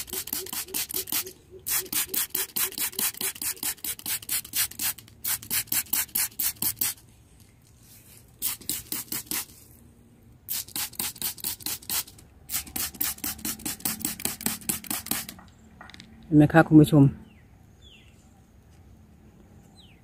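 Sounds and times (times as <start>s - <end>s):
spray bottle hissing: 0.0s - 7.0s, 8.3s - 9.7s, 10.5s - 15.4s.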